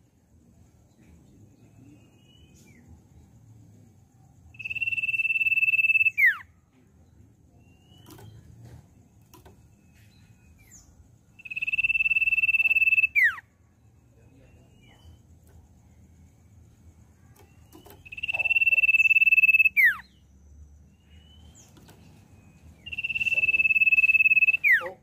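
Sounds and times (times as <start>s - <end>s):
faint bird chirps and clicks: 0.9s - 3.3s, 4.6s - 13.4s, 14.2s - 25.0s
bird whistling: 4.6s - 6.5s, 10.6s - 13.4s, 17.4s - 20.2s, 22.8s - 25.0s.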